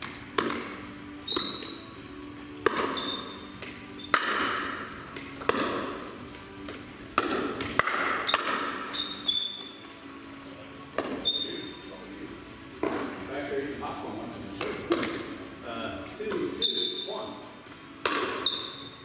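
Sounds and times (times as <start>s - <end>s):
paddles hitting plastic ball: 0.0s - 1.8s, 2.6s - 10.2s, 10.9s - 11.3s, 12.8s - 13.2s, 14.5s - 15.4s, 18.0s - 18.6s
short high squeaks: 1.2s - 1.9s, 2.9s - 4.2s, 8.2s - 9.7s, 11.2s - 11.8s, 16.6s - 17.1s.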